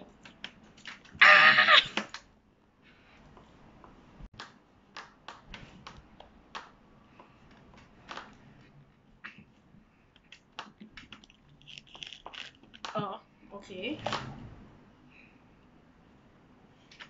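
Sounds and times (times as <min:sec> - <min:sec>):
fruit peel snapping and crackling: 0:10.6 - 0:13.0.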